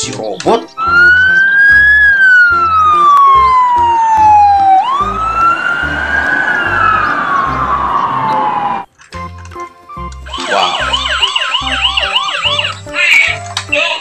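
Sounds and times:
police siren wailing: 0.8 - 8.9, 10.3 - 13.0.

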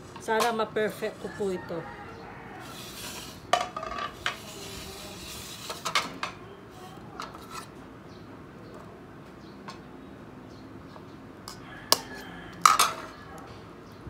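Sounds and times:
dishes and utensils clinking: 11.5 - 13.2.

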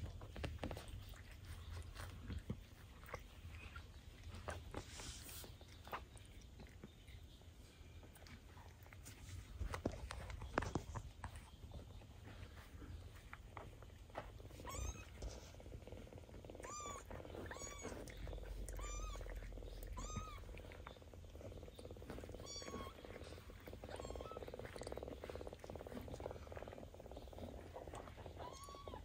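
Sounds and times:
cat purring: 0.0 - 29.0
kitten mewing: 16.6 - 20.5.

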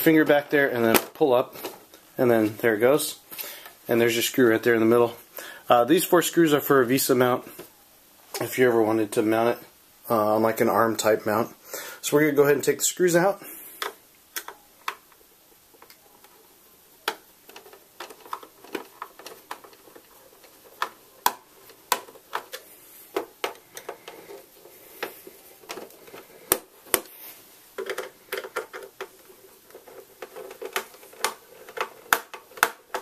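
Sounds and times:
handling rustle: 17.4 - 33.0.

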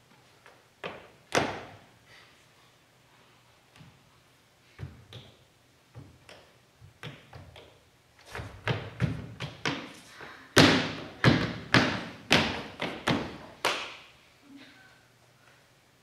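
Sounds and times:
thumps and taps on a stage: 4.8 - 9.9.

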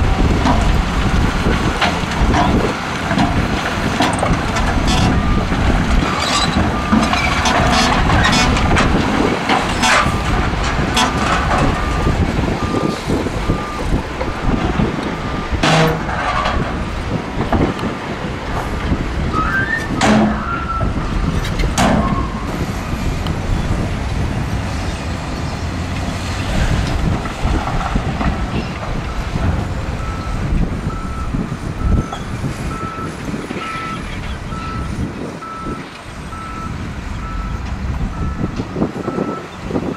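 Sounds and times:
heavy diesel engines running: 0.0 - 39.9
rock and dirt clattering: 0.1 - 32.4
reversing alarm beeping: 11.0 - 16.1, 30.0 - 39.5.

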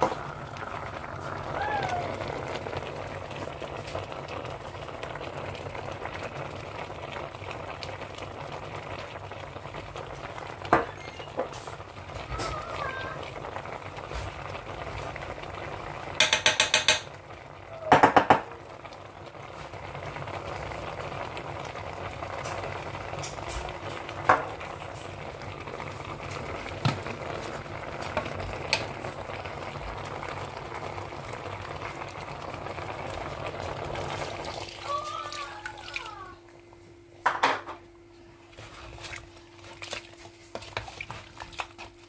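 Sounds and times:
knocks and clicks: 16.2 - 17.1.

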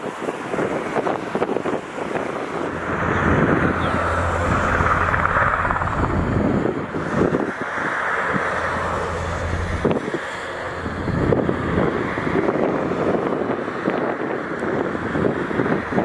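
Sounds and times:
helicopter turbine and rotor noise: 0.0 - 16.0
wind buffeting microphone: 0.0 - 16.0.

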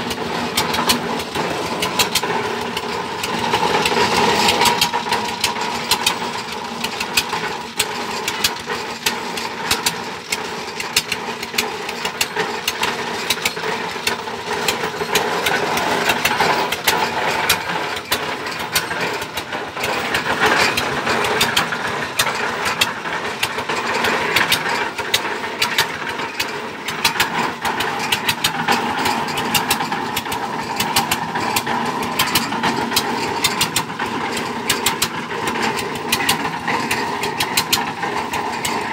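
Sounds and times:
boring rig engine running: 0.0 - 38.9.

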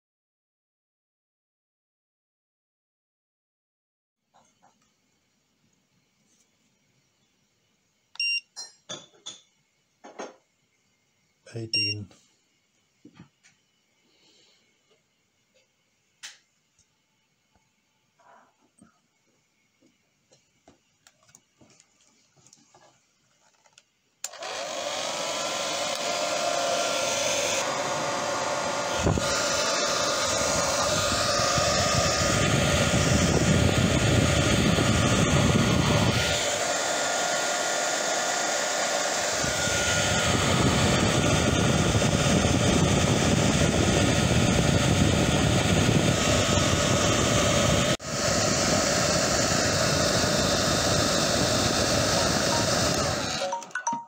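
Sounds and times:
hot-air blower whining: 18.2 - 54.0.

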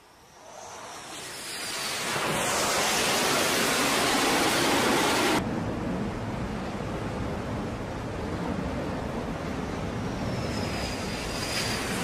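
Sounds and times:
jet engine roaring: 0.0 - 5.5, 8.3 - 12.0
sea noise: 0.0 - 12.0
wind: 0.0 - 12.0.

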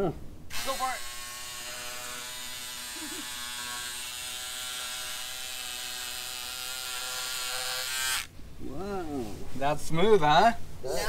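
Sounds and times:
electric fabric cutter whine: 0.5 - 8.3.

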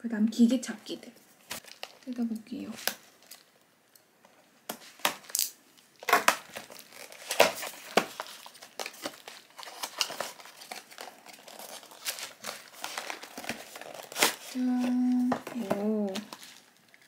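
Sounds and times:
cardboard crinkling and tearing: 1.5 - 2.2, 6.0 - 17.0.

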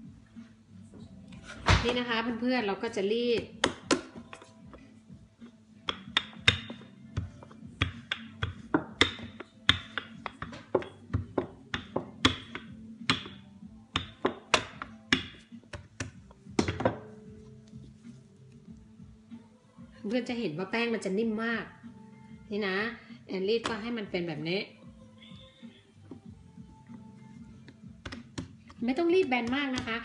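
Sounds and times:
rolling pin knocking on worktop: 5.9 - 13.4.

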